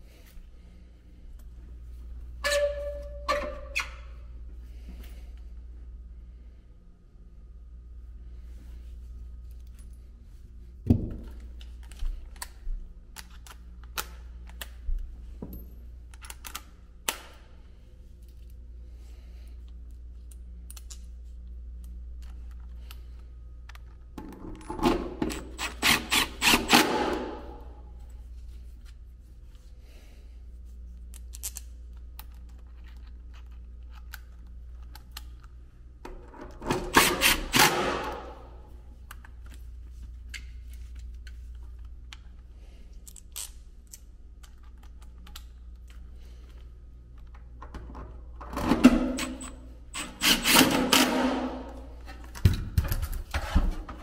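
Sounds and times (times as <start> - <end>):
cordless driver bursts: 50.0 - 51.4.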